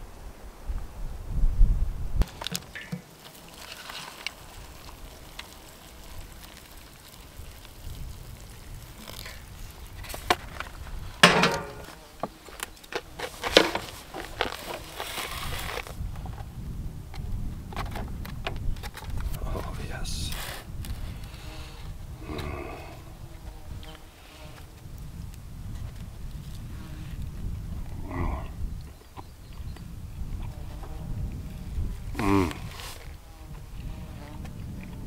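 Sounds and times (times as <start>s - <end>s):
wind rumble: 0.0s - 2.4s, 4.4s - 12.0s, 13.3s - 35.0s
foil lid crinkling: 2.2s - 16.0s
loud knocks: 11.2s - 12.0s.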